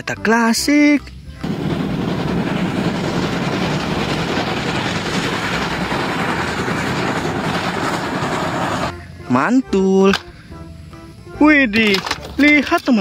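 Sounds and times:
steam locomotive rumbling past: 1.4 - 9.7.

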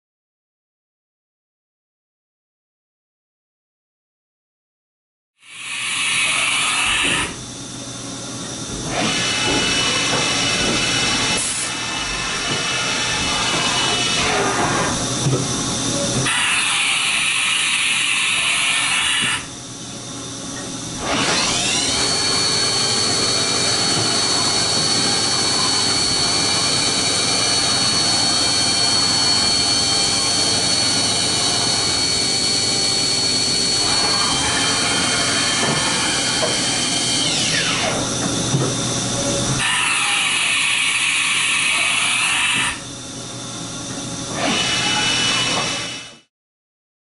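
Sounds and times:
milling machine spindle whine: 5.4 - 46.3
machine table traversing: 20.6 - 40.2.

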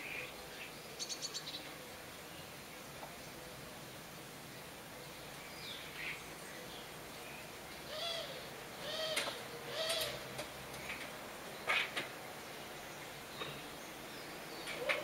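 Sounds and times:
harsh bird calls: 7.8 - 15.0.

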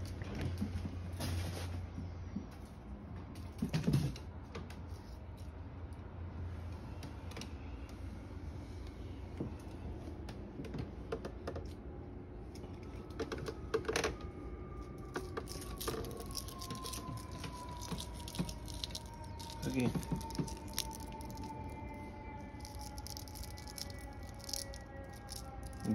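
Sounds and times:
cat claws clicking on wood floor: 15.2 - 21.5, 22.6 - 25.9.

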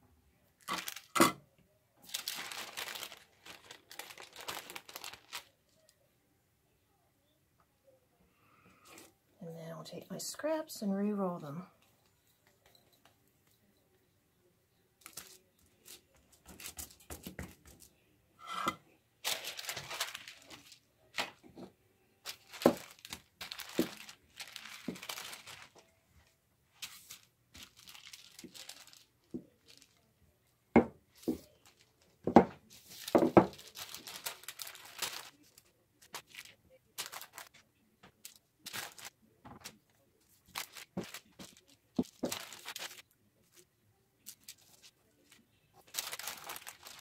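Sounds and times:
baking paper crinkling: 0.6 - 1.2, 2.0 - 6.0, 15.0 - 17.9, 19.2 - 21.5, 22.2 - 30.1, 31.1 - 47.0.

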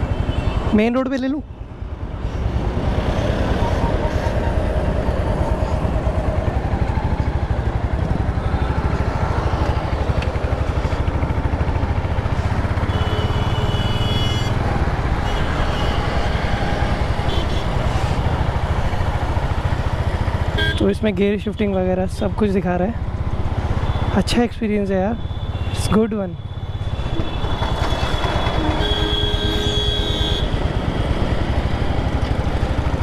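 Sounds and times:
wind and road noise: 0.0 - 33.0
motorcycle engine running: 2.5 - 17.4, 26.4 - 33.0.

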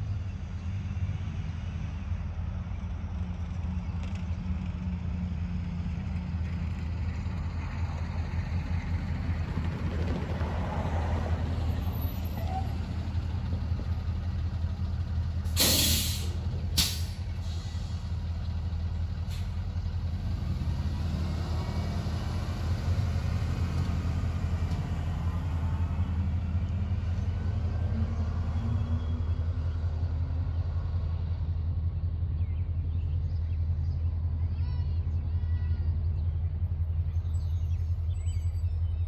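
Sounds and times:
diesel locomotive engine humming: 0.0 - 39.0
air brake hiss: 15.5 - 18.0.

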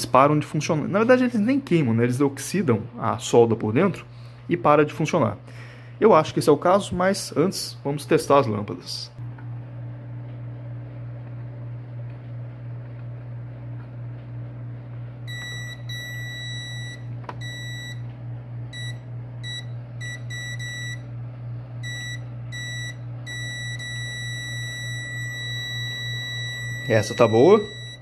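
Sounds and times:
steady low hum: 0.0 - 28.0
multimeter continuity beep: 15.3 - 18.0, 18.7 - 21.0, 21.8 - 28.0.

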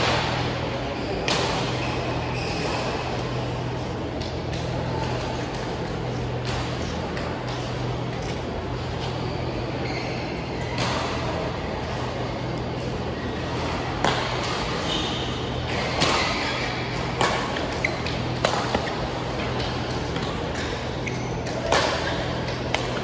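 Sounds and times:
steady low hum: 0.0 - 23.0
racket striking shuttlecock: 14.0 - 14.8, 15.7 - 23.0.

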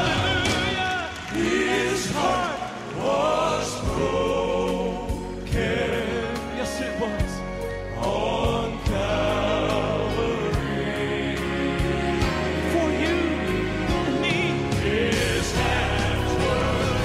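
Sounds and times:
percussion hits: 0.0 - 4.4
male vocal quartet singing: 0.0 - 17.0
piano: 0.0 - 17.0.

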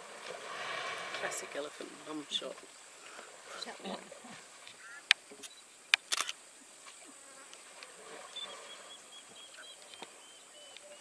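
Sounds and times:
sharp clicks: 5.1 - 6.4.

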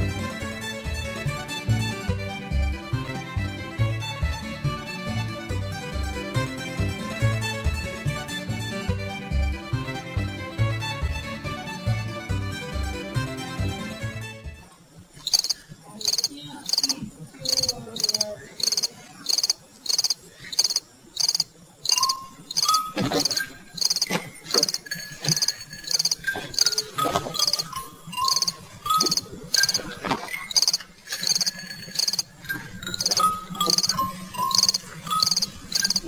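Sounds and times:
crickets chirping: 14.7 - 36.0.

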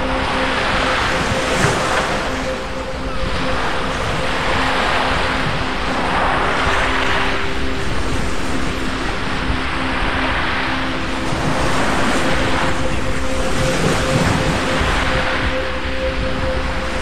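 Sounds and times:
sea waves breaking on a beach: 0.0 - 17.0.

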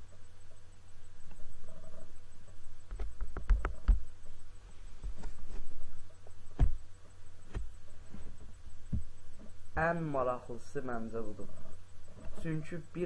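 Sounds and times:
low steady hum: 0.0 - 13.0
sharp knocks and clicks: 2.9 - 4.1
dull thumps: 6.3 - 9.5.

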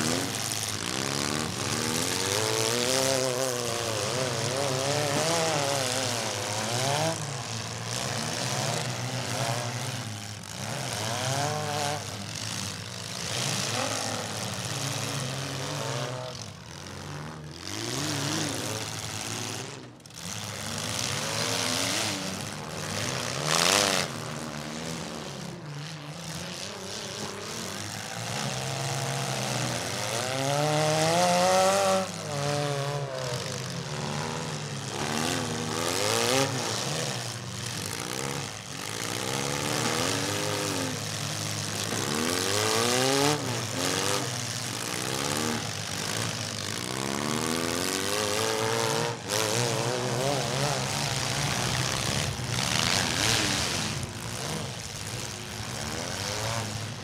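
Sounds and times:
car engines revving: 0.0 - 57.0.

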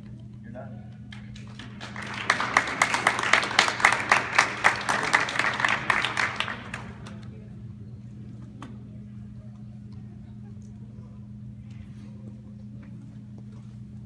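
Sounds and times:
person clapping close by: 1.1 - 7.2
small audience applauding: 1.1 - 7.3.

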